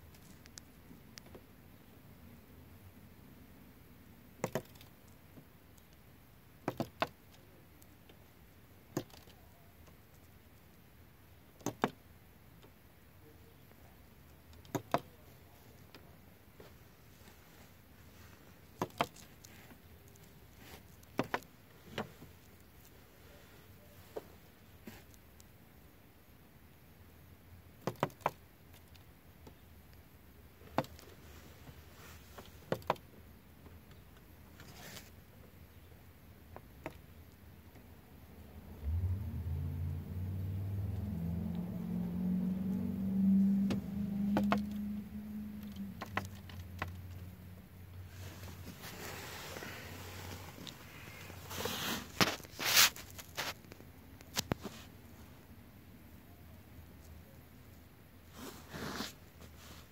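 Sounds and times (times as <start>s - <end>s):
vehicle engine hum: 38.3s - 51.7s.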